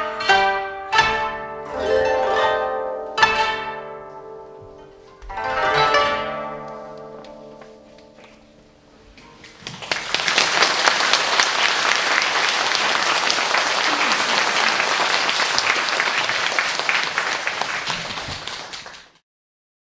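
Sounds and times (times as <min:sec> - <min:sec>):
audience applauding: 0:09.4 - 0:19.2.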